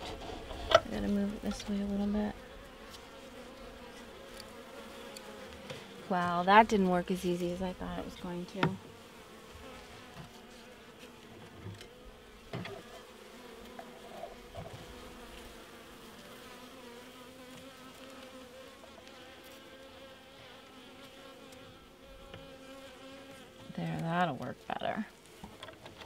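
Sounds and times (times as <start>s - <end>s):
bees buzzing: 0.0s - 25.6s.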